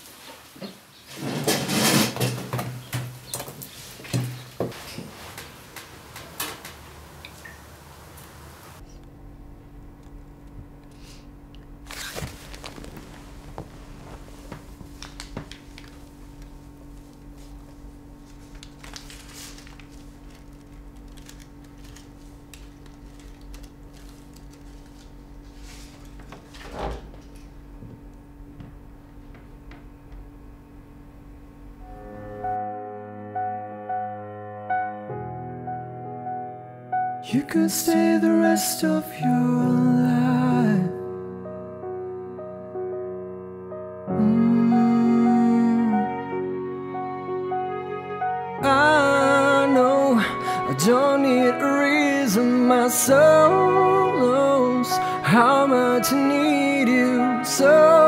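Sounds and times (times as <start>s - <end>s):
metal chair legs scraping tiles: 1.1s - 3.0s
steady low hum: 6.9s - 32.6s
small clicks and rustles: 18.2s - 25.2s.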